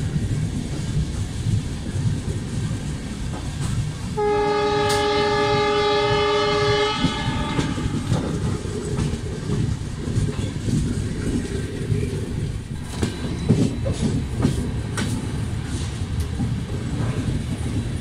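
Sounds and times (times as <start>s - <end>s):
train wheels clacking on track: 0.0s - 18.0s
locomotive horn: 4.2s - 8.4s.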